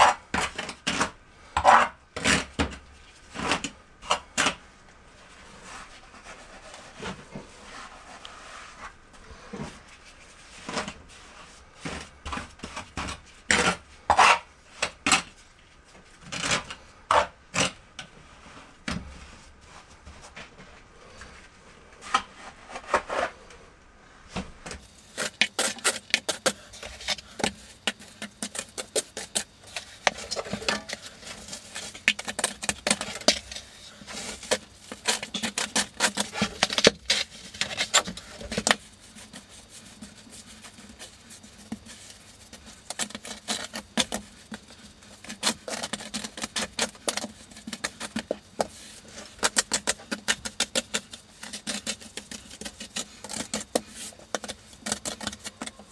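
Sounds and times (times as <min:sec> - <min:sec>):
trowel scraping and tapping mud: 0:11.8 - 0:15.2, 0:25.1 - 0:55.9.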